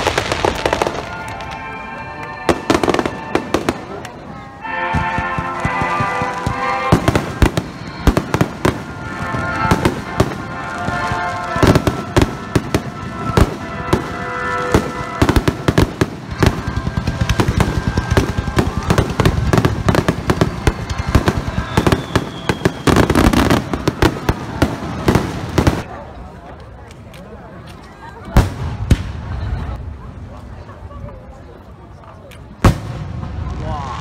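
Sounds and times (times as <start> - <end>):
fireworks bangs and crackling: 0.0 - 30.7, 32.3 - 34.0.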